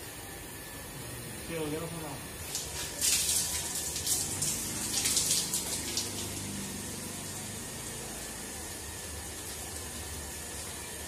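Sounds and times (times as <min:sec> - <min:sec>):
water splashing on carcass: 0:02.4 - 0:07.0
water dripping onto floor: 0:02.4 - 0:08.4.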